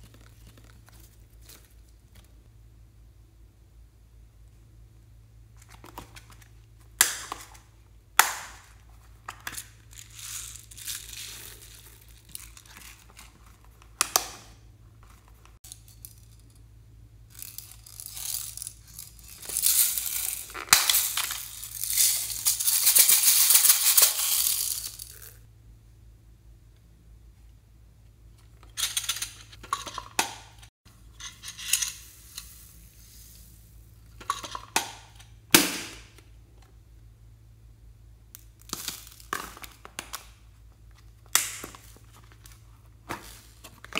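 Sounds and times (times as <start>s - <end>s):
sprinkle beads rattling: 9.6s - 13.3s, 17.3s - 25.4s.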